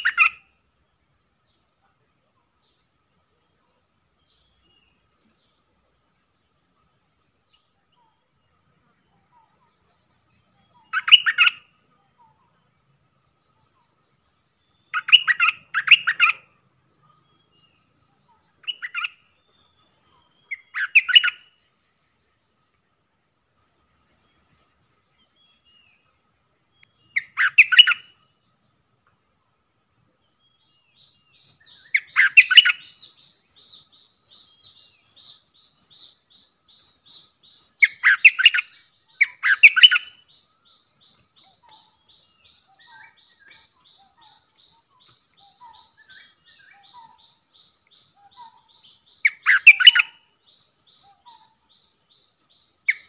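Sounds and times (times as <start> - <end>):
bulbul singing: 7.4 - 21.7, 26.7 - 28.5, 30.2 - 53.0
high bird twittering: 10.7 - 12.5, 13.6 - 21.6, 26.8 - 28.2, 30.5 - 53.0.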